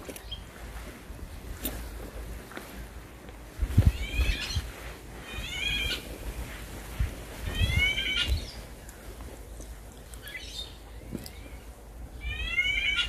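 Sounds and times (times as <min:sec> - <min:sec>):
songbird chirping: 0:00.0 - 0:00.6, 0:07.5 - 0:13.0.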